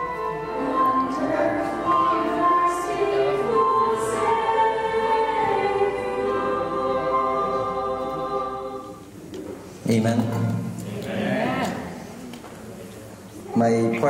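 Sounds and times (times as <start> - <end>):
women singing in harmony: 0.0 - 9.2.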